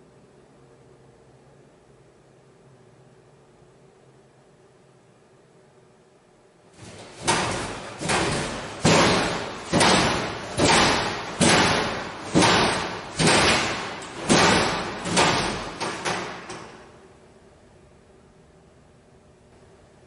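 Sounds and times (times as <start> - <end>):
loud bangs echoing in corridor: 6.8 - 17.1.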